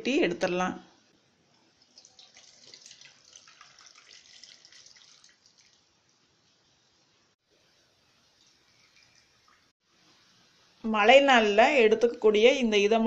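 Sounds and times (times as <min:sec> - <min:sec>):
tea trickling through a strainer: 0:01.7 - 0:06.2, 0:08.3 - 0:09.7.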